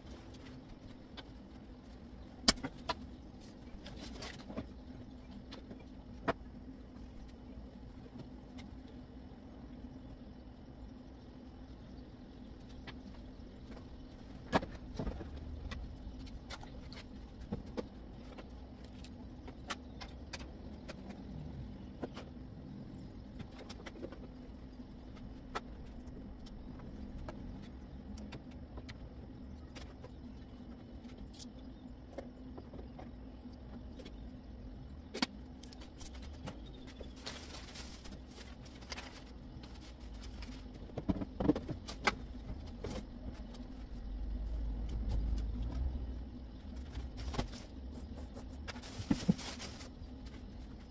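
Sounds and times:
low hum: 0:00.0 - 0:50.9
rustling: 0:35.9 - 0:40.7, 0:47.0 - 0:50.8.

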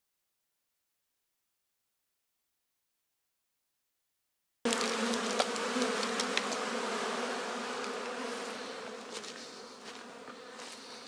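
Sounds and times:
sharp ticks: 0:04.7 - 0:06.7
honey bees buzzing: 0:04.7 - 0:11.0.

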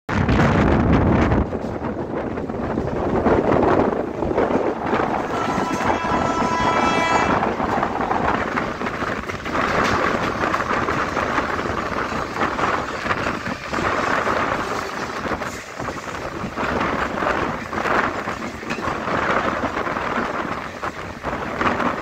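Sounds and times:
train rumble and clatter: 0:00.1 - 0:22.0
wind buffeting microphone: 0:00.1 - 0:22.0
train horn: 0:05.0 - 0:08.3.

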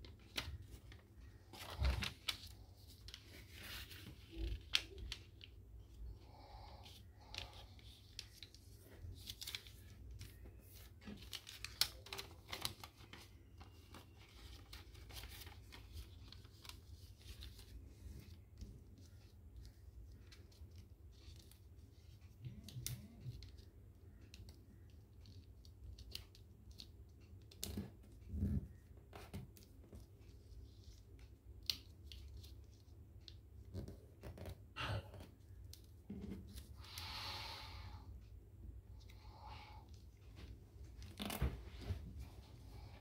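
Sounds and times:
paper crackles and taps: 0:00.0 - 0:05.6, 0:07.2 - 0:21.6, 0:22.4 - 0:31.0, 0:31.6 - 0:34.6
paper rustling: 0:00.0 - 0:05.6, 0:07.2 - 0:21.6.

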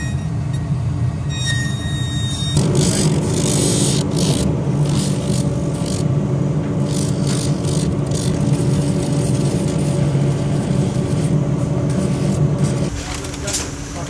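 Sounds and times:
electric motor humming: 0:02.6 - 0:12.9
spinning wheel rubbing on boot: 0:06.8 - 0:12.9.

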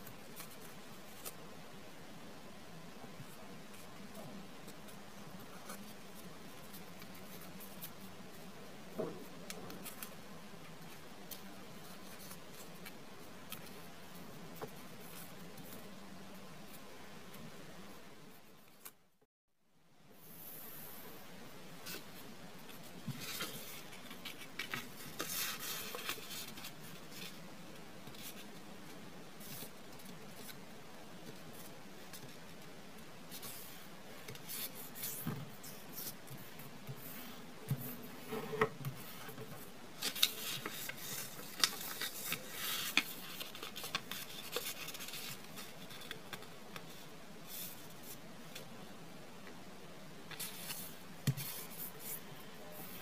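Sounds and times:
paper rustling and scraping: 0:22.8 - 0:27.4, 0:33.3 - 0:48.2, 0:50.3 - 0:52.2.

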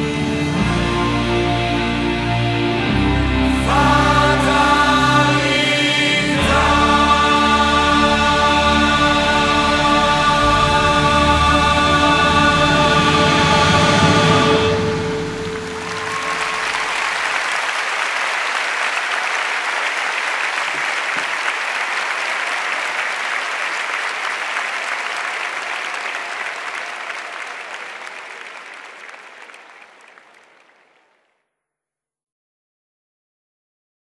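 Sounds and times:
audience applauding: 0:03.8 - 0:31.3
final song chord: 0:06.2 - 0:17.2.

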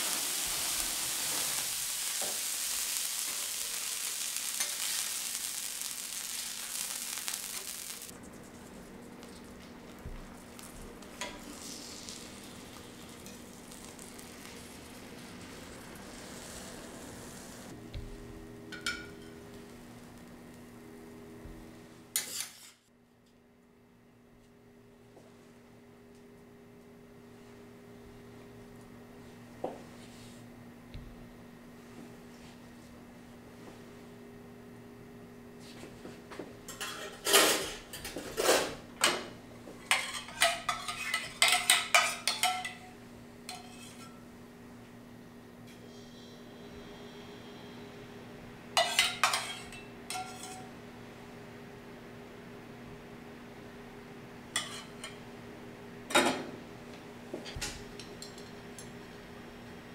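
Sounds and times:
loud hiss: 0:00.0 - 0:08.1, 0:11.5 - 0:17.7
food sizzling on griddle: 0:00.0 - 0:08.2, 0:09.9 - 0:17.8, 0:39.8 - 0:42.9, 0:43.5 - 0:44.2, 0:48.8 - 0:50.8
steady hum: 0:00.0 - 0:22.3, 0:37.6 - 0:59.9
metal spatulas clanking on griddle: 0:18.7 - 0:19.3, 0:22.2 - 0:22.8, 0:36.7 - 0:42.9, 0:43.5 - 0:44.2, 0:48.8 - 0:50.7, 0:54.6 - 0:55.2
spatula clinking on metal plate: 0:39.9 - 0:42.9, 0:48.8 - 0:50.7.

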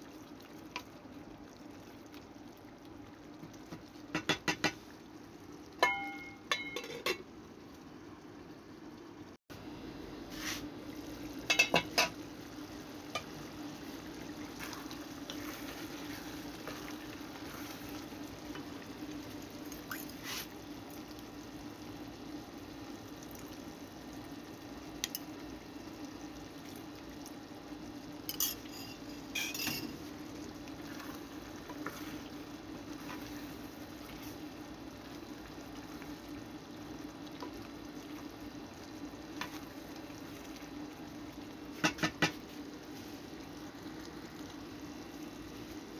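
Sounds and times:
stew simmering in a pot: 0:00.0 - 0:45.9
metal pot lid clinking: 0:05.8 - 0:07.2.

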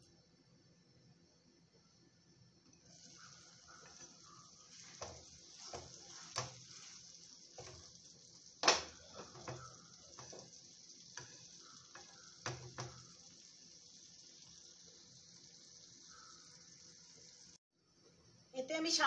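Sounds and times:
faint steady hiss: 0:00.0 - 0:19.0
spatula scraping a pan: 0:02.9 - 0:08.1, 0:08.9 - 0:13.2.

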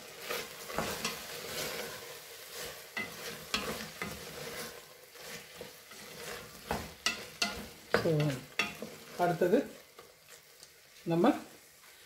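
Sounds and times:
mushrooms sizzling: 0:00.0 - 0:12.0
spoon scraping a metal pot: 0:00.2 - 0:09.1.

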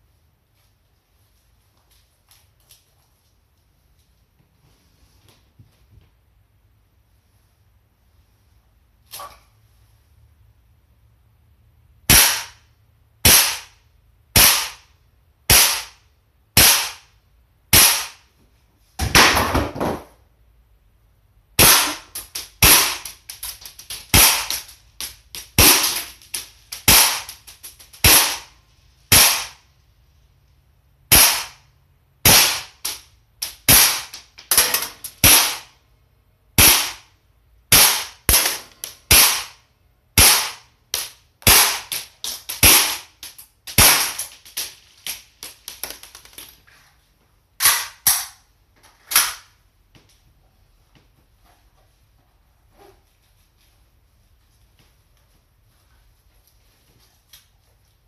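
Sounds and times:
airsoft pistol shots: 0:12.1 - 0:12.6, 0:13.2 - 0:13.8, 0:14.4 - 0:14.9, 0:15.5 - 0:16.0, 0:16.6 - 0:17.1, 0:17.7 - 0:18.2, 0:21.6 - 0:23.1, 0:24.1 - 0:24.6, 0:25.6 - 0:26.1, 0:26.8 - 0:27.4, 0:28.0 - 0:28.5, 0:29.1 - 0:29.6, 0:31.1 - 0:31.6, 0:32.2 - 0:33.0, 0:33.6 - 0:35.7, 0:36.6 - 0:37.1, 0:37.7 - 0:39.6, 0:40.2 - 0:40.7, 0:41.4 - 0:43.1, 0:43.7 - 0:44.4.

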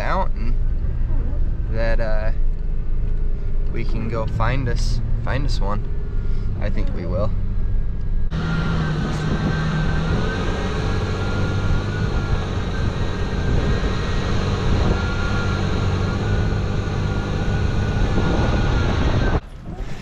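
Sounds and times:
truck engine hum: 0:00.0 - 0:20.0
wind noise: 0:07.7 - 0:20.0.

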